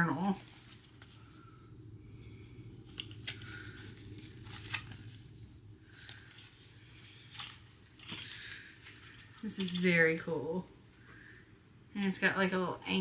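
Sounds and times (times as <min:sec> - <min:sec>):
journal handling clicks and rustles: 0:02.9 - 0:05.2, 0:07.2 - 0:09.8.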